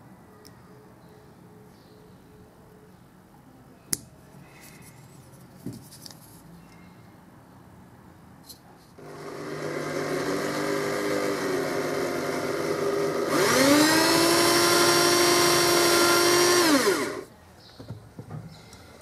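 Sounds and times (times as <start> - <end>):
drill press boring wood: 9.0 - 17.3.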